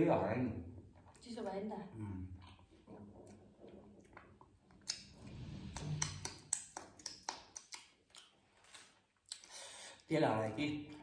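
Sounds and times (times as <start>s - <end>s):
mouth smacks from chewing: 2.4s - 9.6s.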